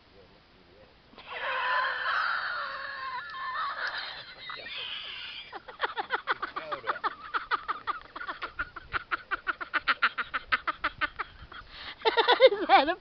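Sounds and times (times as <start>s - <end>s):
rapid chirping animal calls: 2.1s - 5.7s.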